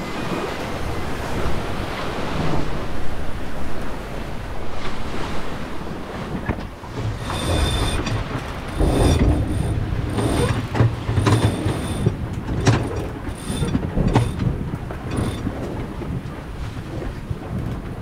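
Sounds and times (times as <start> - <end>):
rushing water and wind: 0.0 - 18.0
boat hull creaking: 6.1 - 18.0.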